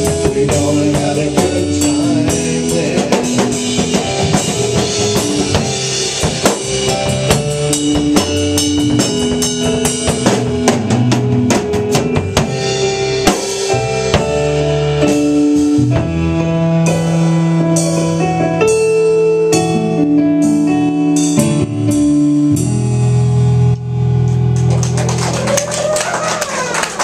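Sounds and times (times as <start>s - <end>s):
drum hits: 0.0s - 15.3s
electronic keyboard chords: 0.0s - 26.0s.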